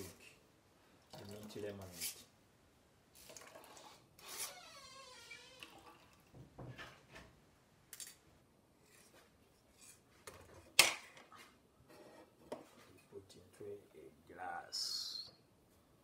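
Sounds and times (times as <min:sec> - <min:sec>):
lemonade pouring into a glass: 0:03.2 - 0:04.0, 0:05.6 - 0:06.4.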